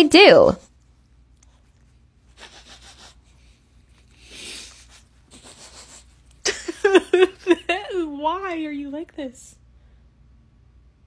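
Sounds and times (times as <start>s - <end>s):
person sniffing: 2.4s - 3.4s, 4.2s - 6.1s.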